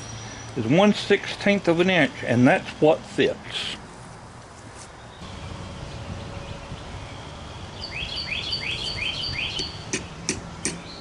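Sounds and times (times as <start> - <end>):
songbird singing: 4.9 - 11.0.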